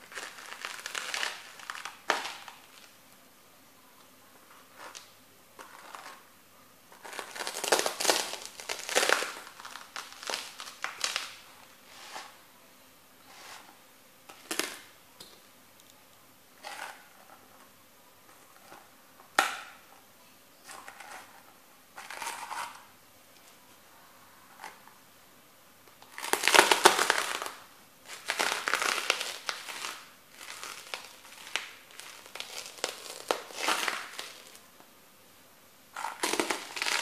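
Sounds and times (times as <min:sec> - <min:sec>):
boots crunching bread sticks: 0:26.1 - 0:34.6.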